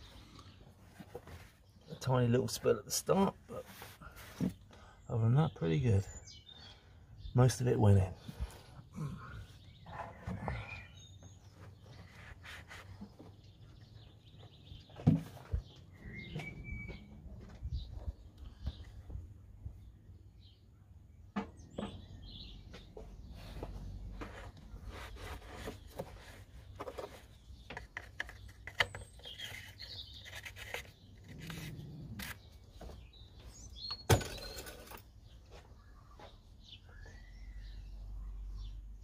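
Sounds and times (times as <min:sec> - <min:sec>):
birds chirping: 0:00.0 - 0:39.0
clicks and knocks of handling: 0:25.9 - 0:33.0.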